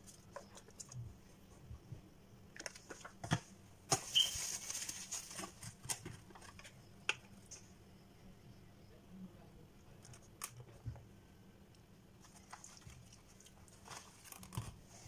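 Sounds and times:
plastic crinkle: 0:03.9 - 0:06.7, 0:12.2 - 0:15.0.

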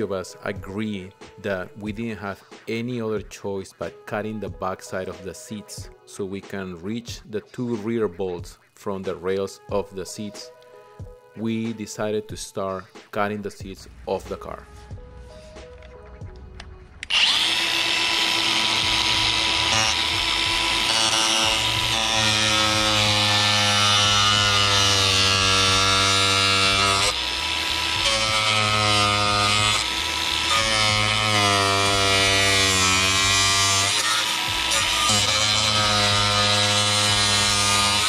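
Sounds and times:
cut-off grinder cutting metal: 0:17.0 - 0:38.0.

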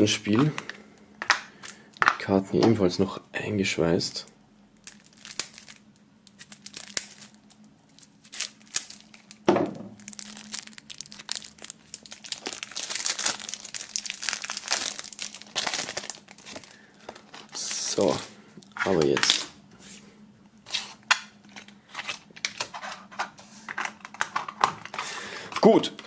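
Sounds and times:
plastic film crinkling and tearing: 0:04.8 - 0:19.6.

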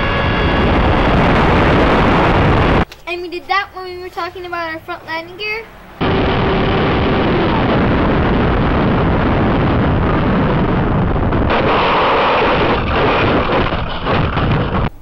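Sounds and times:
wind and motor noise: 0:00.0 - 0:02.9, 0:06.0 - 0:14.9.

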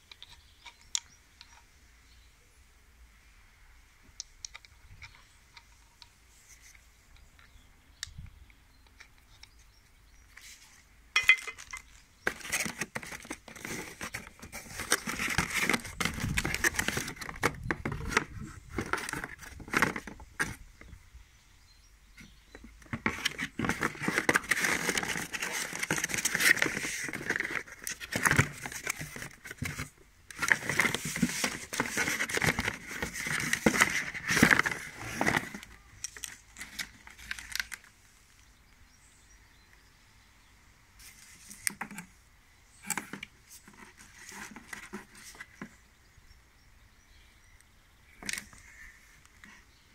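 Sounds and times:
cardboard packaging rustling: 0:11.2 - 0:20.6, 0:22.6 - 0:37.9, 0:42.8 - 0:45.7.

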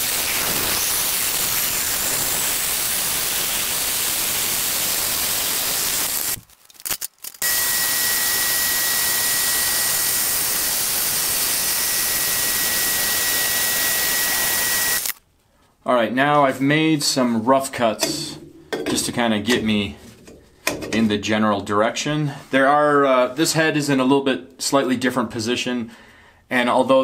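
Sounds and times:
bandsaw blade cutting metal tube: 0:00.0 - 0:06.4, 0:18.0 - 0:21.1.

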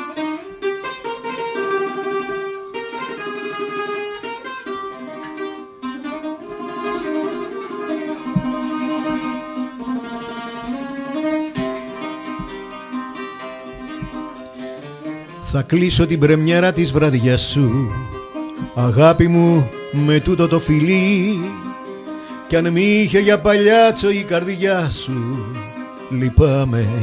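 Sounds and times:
bouzouki plucked melody: 0:00.0 - 0:27.0
person singing: 0:15.4 - 0:21.8, 0:22.5 - 0:27.0.

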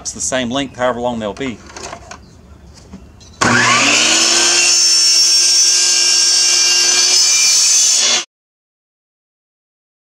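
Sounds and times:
miter saw cutting plastic pipe: 0:03.4 - 0:08.3.

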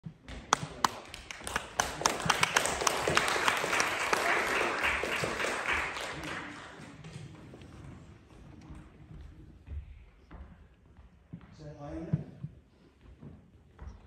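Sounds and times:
audience applauding: 0:00.4 - 0:07.2.

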